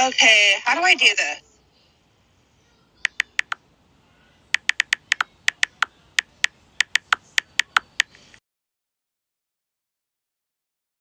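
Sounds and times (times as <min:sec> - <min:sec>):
phone keyboard key clicks: 0:03.1 - 0:03.6, 0:04.6 - 0:08.2.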